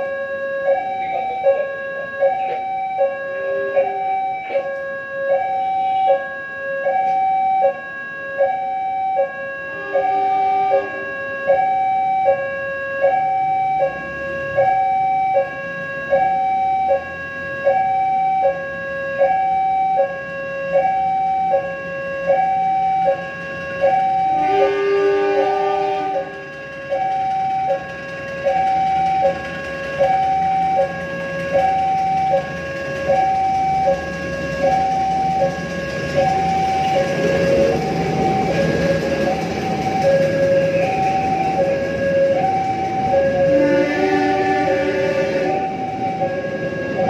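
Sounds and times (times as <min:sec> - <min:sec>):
two-tone crossing alarm: 0:00.0 - 0:47.0
low horn-like tone: 0:09.7 - 0:11.2, 0:24.3 - 0:26.4, 0:43.4 - 0:45.8.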